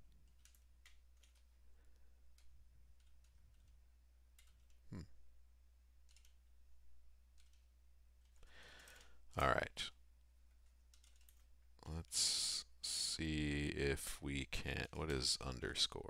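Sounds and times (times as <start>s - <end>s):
faint keyboard typing: 0.0s - 5.0s, 5.9s - 6.6s, 7.3s - 12.2s.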